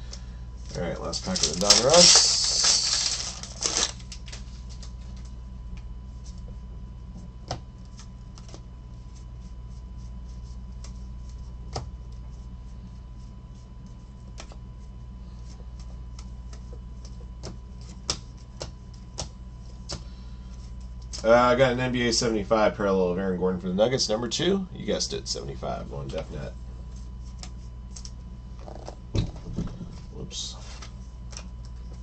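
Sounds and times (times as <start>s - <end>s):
steady low hum: 0.0s - 32.0s
cards flipping with light clicks: 27.2s - 29.0s.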